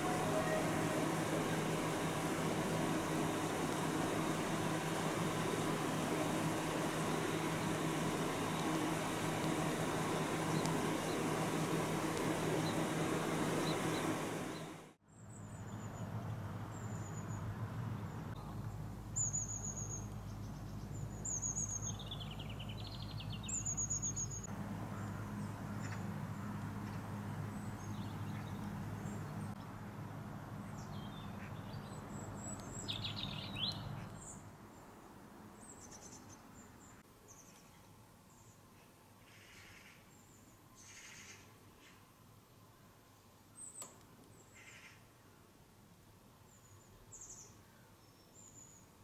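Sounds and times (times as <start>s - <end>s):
loud steady rushing noise: 0.0s - 15.0s
steady low hum: 0.0s - 35.4s
small birds chirping and warbling: 9.4s - 16.0s, 18.0s - 26.1s, 27.5s - 29.6s, 30.6s - 34.5s.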